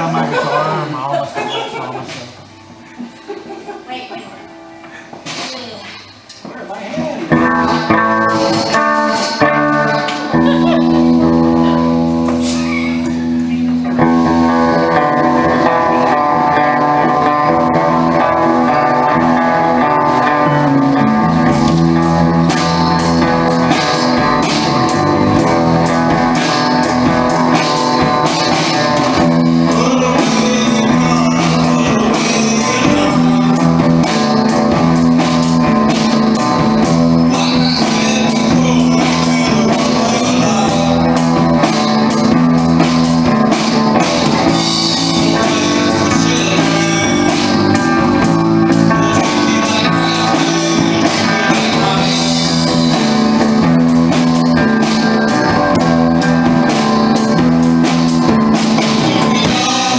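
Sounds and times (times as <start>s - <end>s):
bass guitar: 0.0s - 3.2s, 3.9s - 59.9s
electric guitar chords: 0.0s - 6.4s, 7.1s - 59.9s
drum kit beat: 4.4s - 59.9s.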